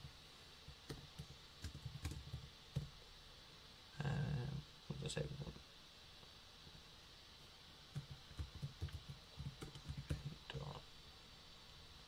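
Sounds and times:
computer keyboard typing: 0.9 - 2.9, 8.0 - 10.4.

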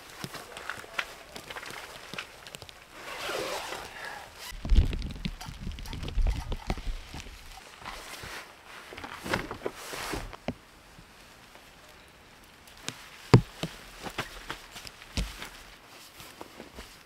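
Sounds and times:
sharp knocks and thumps: 13.3 - 14.2.

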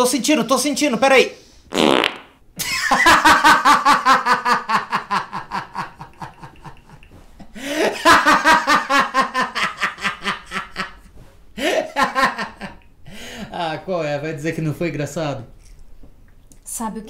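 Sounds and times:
man laughing hard: 2.6 - 11.0, 11.6 - 12.8.

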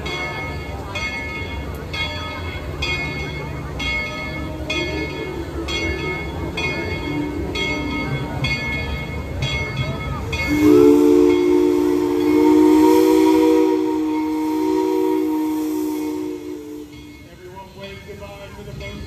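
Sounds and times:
locomotive bell ringing: 0.0 - 19.0
steam whistle blast: 10.4 - 17.1.

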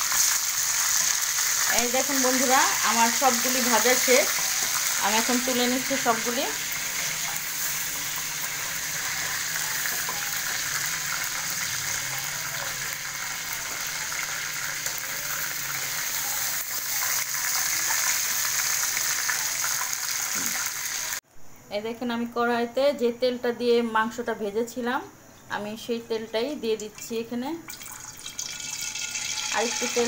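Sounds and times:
chicken sizzling in hot oil: 0.0 - 21.2, 27.7 - 30.0.

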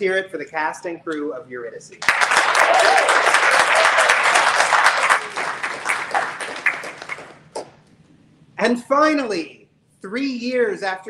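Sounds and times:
audience applause: 2.0 - 7.4.

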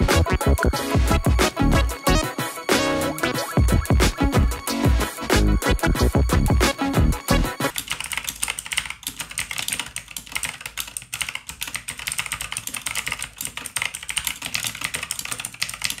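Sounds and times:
mechanical keyboard typing: 7.6 - 16.0.

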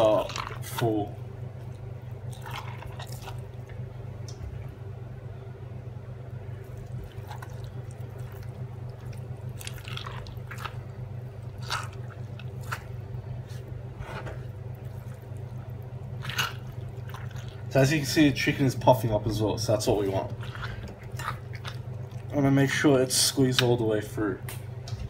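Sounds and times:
steady low hum: 0.0 - 25.0
wet stuffing squelching: 6.6 - 13.7, 14.8 - 18.0, 19.9 - 22.4.

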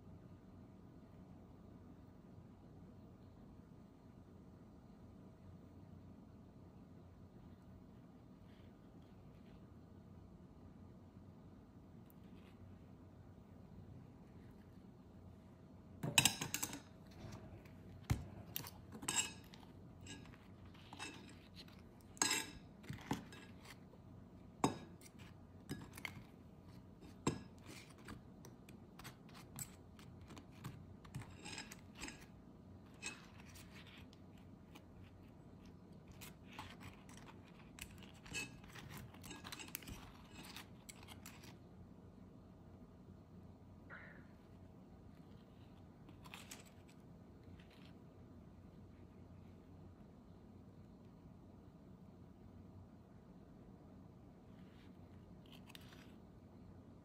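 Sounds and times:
faint steady hum: 0.0 - 57.0
utensils clinking against dishes: 16.0 - 17.4, 18.1 - 23.8, 29.0 - 33.8, 36.5 - 41.4.

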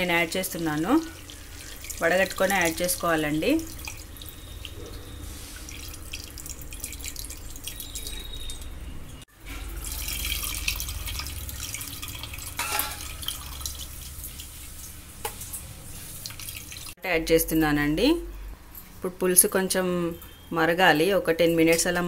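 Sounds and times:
water pouring and splashing into pot: 0.0 - 17.0.

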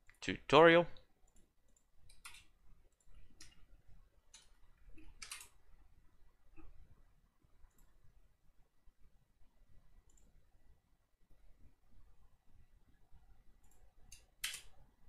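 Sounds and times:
faint keyboard and mouse clicks: 1.0 - 3.7, 4.3 - 5.6, 7.6 - 8.0, 10.0 - 10.4, 13.6 - 14.8.

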